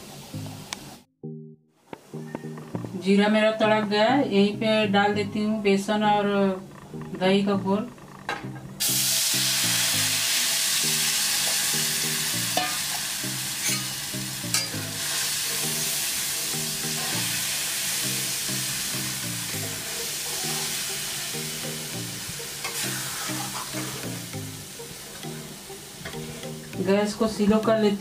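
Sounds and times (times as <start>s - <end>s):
soft background music: 0.0s - 28.0s
batter sizzling in hot oil: 8.8s - 24.8s
spatula scraping pan: 16.8s - 17.5s, 22.6s - 24.3s.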